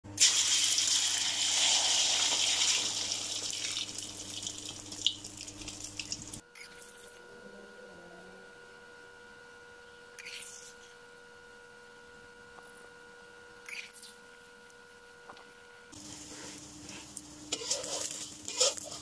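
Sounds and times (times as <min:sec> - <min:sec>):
faint steady hum: 0:00.1 - 0:19.0
egg sizzling in hot oil: 0:00.2 - 0:06.4, 0:16.0 - 0:19.0.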